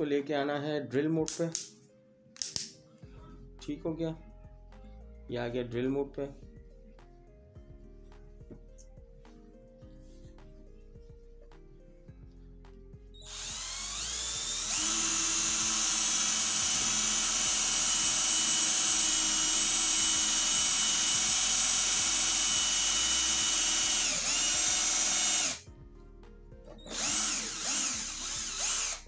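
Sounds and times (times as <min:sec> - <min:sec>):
cordless drill whining: 0:13.2 - 0:25.6, 0:26.7 - 0:29.0.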